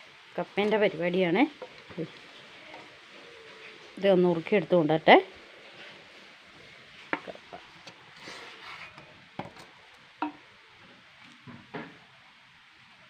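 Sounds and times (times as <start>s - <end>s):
soft rustling: 0.0s - 9.2s.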